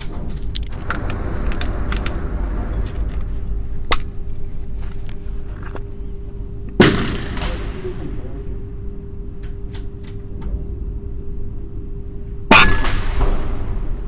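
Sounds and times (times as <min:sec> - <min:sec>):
steady low hum: 0:00.0 - 0:14.0
air rifle shot: 0:06.8 - 0:07.9, 0:12.5 - 0:14.0.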